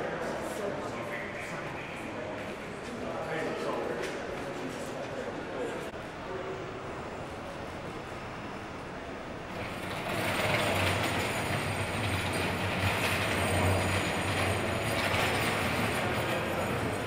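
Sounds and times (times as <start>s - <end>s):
ambulance engine humming: 5.9s - 17.0s.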